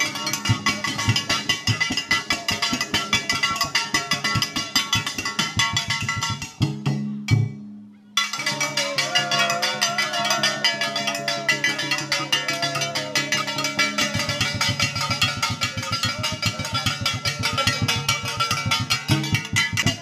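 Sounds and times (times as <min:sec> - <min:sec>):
fast sharp percussion clatter: 0:00.0 - 0:07.5, 0:08.2 - 0:20.0
double-headed drum beaten: 0:00.0 - 0:07.6, 0:08.2 - 0:20.0
wavering melodic line: 0:08.2 - 0:17.1.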